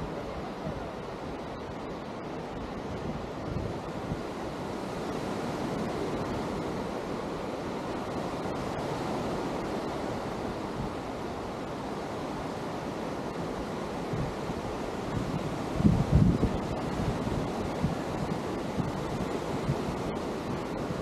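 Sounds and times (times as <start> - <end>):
wind buffeting microphone: 0.0 - 11.2, 13.2 - 21.0
waves breaking on beach: 0.0 - 21.0.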